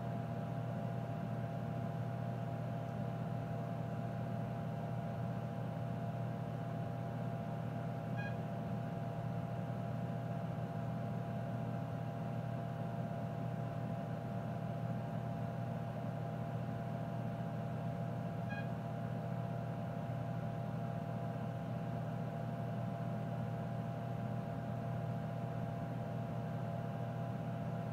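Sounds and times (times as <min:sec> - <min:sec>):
electrical hum and fan: 0:00.0 - 0:27.9.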